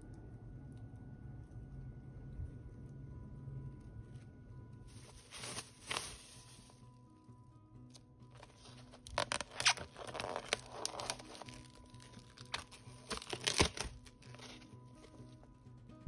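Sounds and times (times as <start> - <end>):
cling film peeling and crinkling: 4.9 - 6.8, 8.4 - 15.3.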